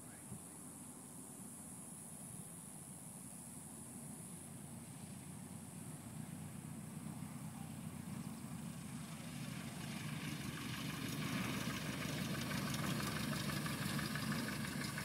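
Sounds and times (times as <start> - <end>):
airplane engine and propeller: 4.5 - 15.0.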